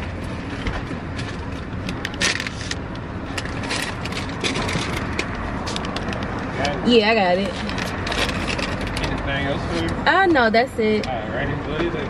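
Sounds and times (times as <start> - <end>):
low rumble inside car: 0.0 - 12.0
clicks and rustling: 0.6 - 6.8, 7.4 - 9.4.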